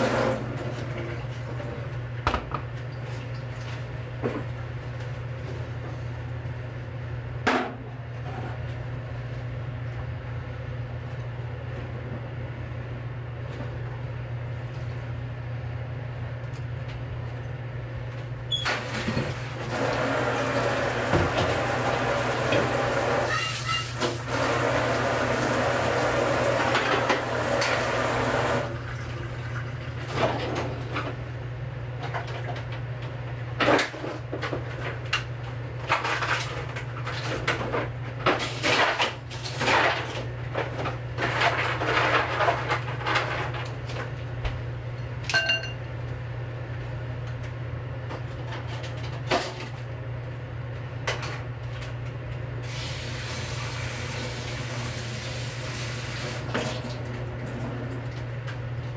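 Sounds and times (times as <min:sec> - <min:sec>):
kitchen tap water running: 0:00.0 - 0:00.6, 0:18.8 - 0:30.0, 0:52.6 - 0:58.2
steady low hum: 0:00.0 - 0:18.5
dishes and utensils clinking: 0:45.3 - 0:45.8.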